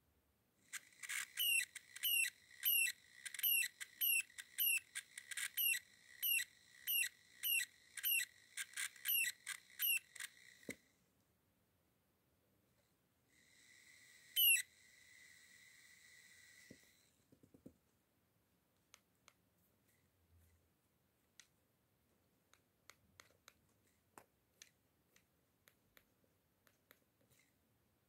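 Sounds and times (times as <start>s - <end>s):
small motor squealing: 0.7s - 10.7s, 14.4s - 14.8s.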